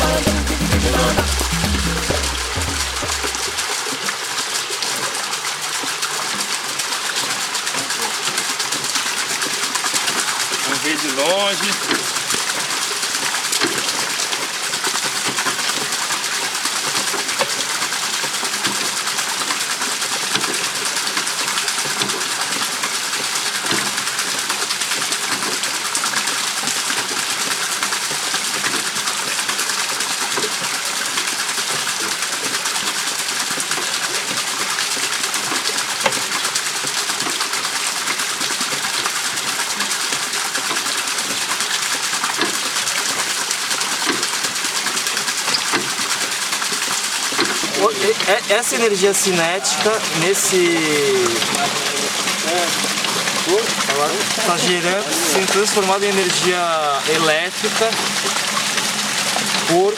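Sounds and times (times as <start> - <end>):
water splashing onto water wheel: 0.0 - 59.9.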